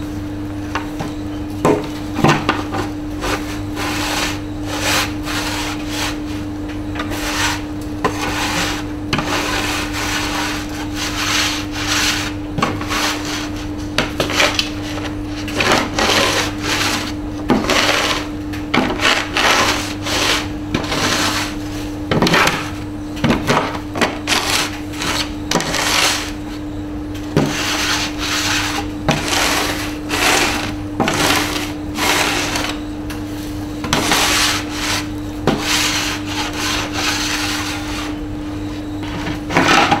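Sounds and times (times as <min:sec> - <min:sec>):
steady low hum: 0:00.0 - 0:40.0
iron scraping over wooden board: 0:03.2 - 0:06.4, 0:07.0 - 0:22.7, 0:24.3 - 0:26.3, 0:27.4 - 0:32.8, 0:33.8 - 0:38.2.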